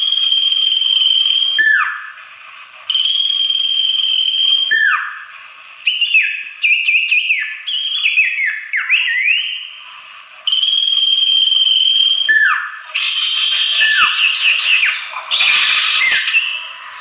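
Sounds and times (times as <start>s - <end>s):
bird whistling calls: 0.0s - 2.2s, 2.9s - 9.8s, 10.5s - 17.0s
bird chattering notes: 13.0s - 16.7s.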